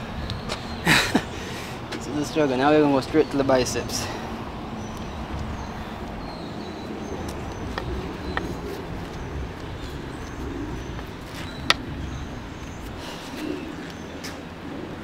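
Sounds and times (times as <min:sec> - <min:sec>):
low traffic rumble: 0:00.0 - 0:15.0
bird chirps: 0:04.8 - 0:14.4.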